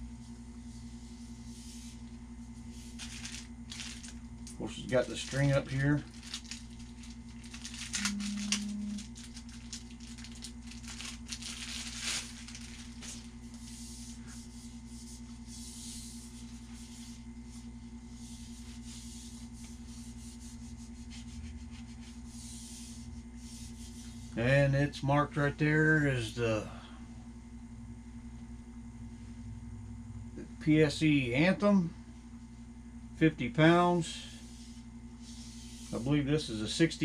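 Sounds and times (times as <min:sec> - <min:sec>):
low electrical hum: 0:00.0 - 0:37.0
packaging rustling and clicking: 0:03.0 - 0:04.2, 0:05.2 - 0:13.3
short low tone: 0:08.0 - 0:09.1.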